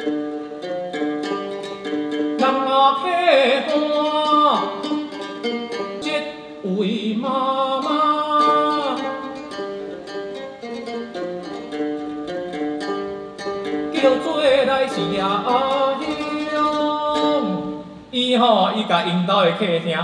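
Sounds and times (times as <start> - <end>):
plucked lute: 0.0 - 20.0
man singing folk song: 2.4 - 10.2, 13.9 - 20.0.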